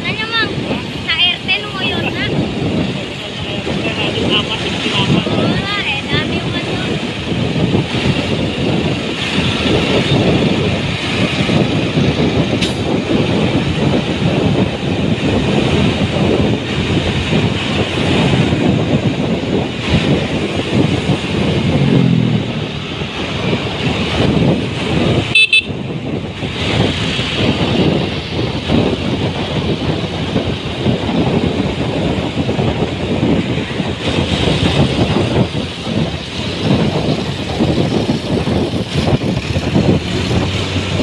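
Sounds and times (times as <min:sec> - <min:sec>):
motorbike engine and road noise: 0:00.0 - 0:41.0
street traffic: 0:00.0 - 0:41.0
wind rush on microphone: 0:00.0 - 0:41.0
vehicle horn toots: 0:25.3 - 0:25.8.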